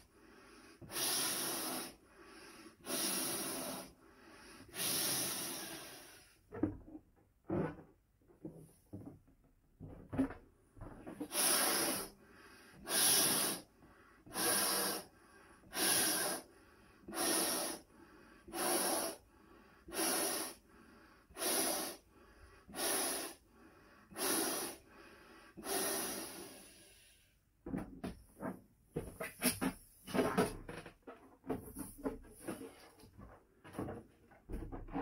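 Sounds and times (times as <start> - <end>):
breaths blown into balloon: 0.0 - 6.5, 11.1 - 27.4.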